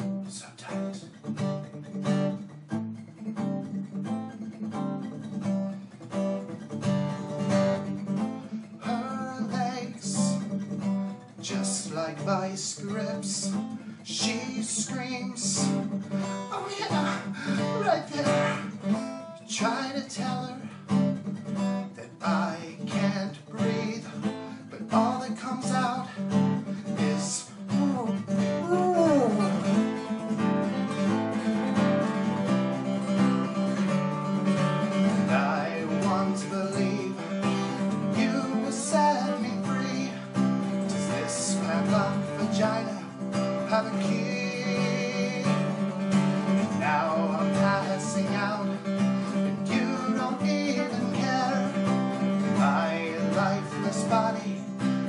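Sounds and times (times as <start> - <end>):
man singing: 0.0 - 1.2, 8.5 - 10.5, 11.4 - 20.8, 21.9 - 29.8, 35.0 - 55.0
acoustic guitar: 0.0 - 55.0.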